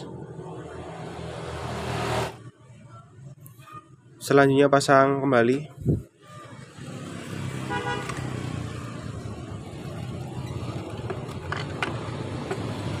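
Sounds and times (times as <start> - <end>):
motor vehicle engine running: 8.0 - 13.0.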